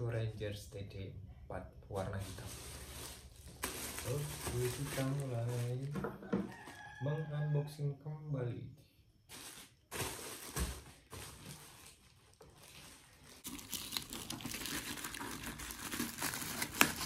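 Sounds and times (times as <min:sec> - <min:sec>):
plastic wrapping crinkling: 0:02.0 - 0:06.9, 0:09.3 - 0:17.0
scissors cutting plastic: 0:13.5 - 0:17.0.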